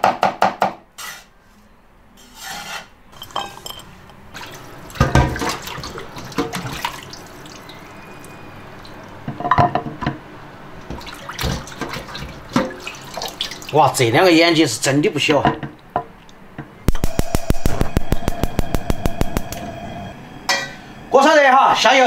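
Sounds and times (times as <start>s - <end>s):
water sloshing in a basin: 3.2s - 9.3s, 10.8s - 14.1s.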